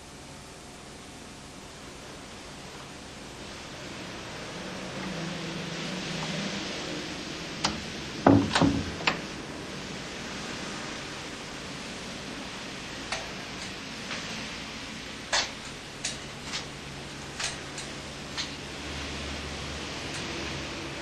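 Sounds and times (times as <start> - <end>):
steady hiss: 0.0 - 21.0
door latch click: 7.6 - 9.3
wooden door creaking and shutting: 7.6 - 9.4.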